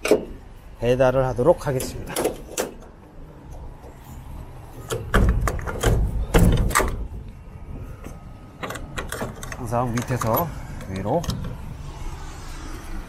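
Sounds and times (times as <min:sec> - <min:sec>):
metal clanks and knocks: 0:00.0 - 0:00.4, 0:04.8 - 0:11.6
heavy door thumps: 0:05.0 - 0:07.2.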